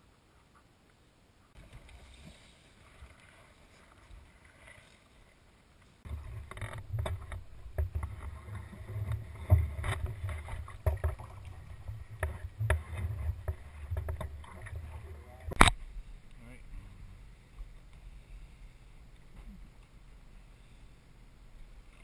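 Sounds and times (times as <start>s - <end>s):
knocks in aluminum boat: 9.0s - 14.9s.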